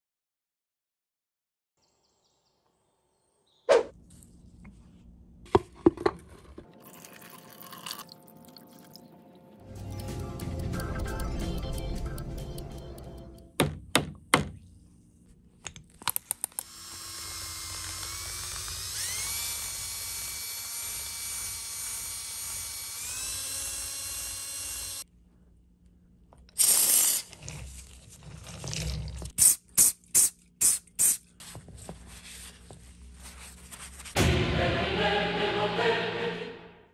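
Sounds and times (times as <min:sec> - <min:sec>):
electric drill spinning: 0:16.5 - 0:25.1
short hissing bursts: 0:26.6 - 0:27.3, 0:29.4 - 0:31.2.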